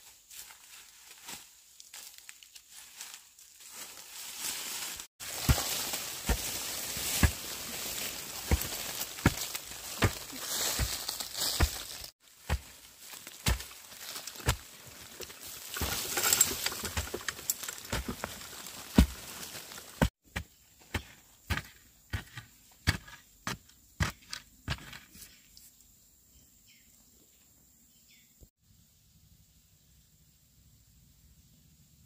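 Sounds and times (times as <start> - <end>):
rustling handwork: 0.0 - 20.2.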